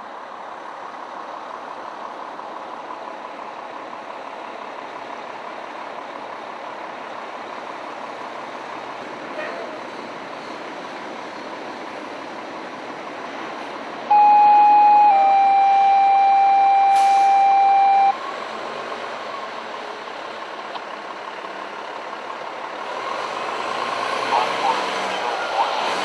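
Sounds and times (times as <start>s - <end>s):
fire engine running: 0.0s - 26.0s.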